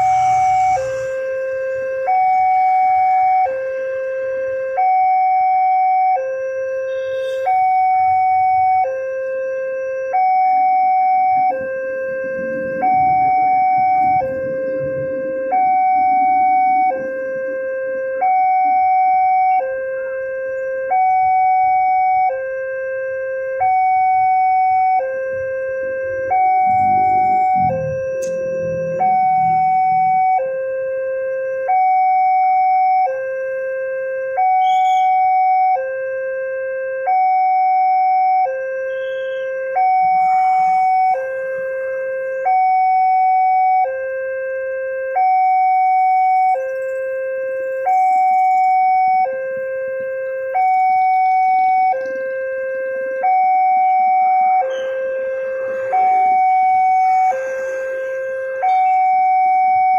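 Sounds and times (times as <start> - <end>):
level crossing two-tone alarm bell: 0.0 - 36.8, 37.5 - 42.6, 53.2 - 59.9.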